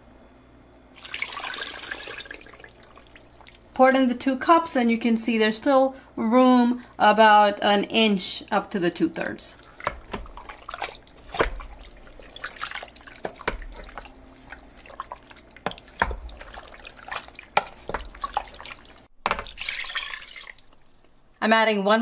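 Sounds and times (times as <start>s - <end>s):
water pouring into pot: 0.9s - 3.8s, 9.2s - 21.4s
wooden spoon stirring wet meat: 8.7s - 21.2s
spoon knocking against pot: 13.2s - 14.1s.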